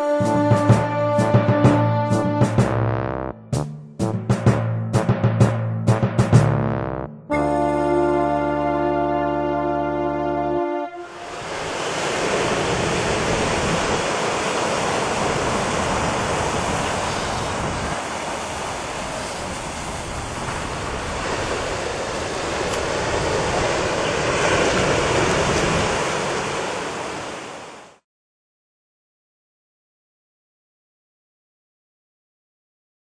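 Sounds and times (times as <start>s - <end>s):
wind: 7.3s - 28.0s
ocean surf on rocky shore: 11.0s - 28.0s.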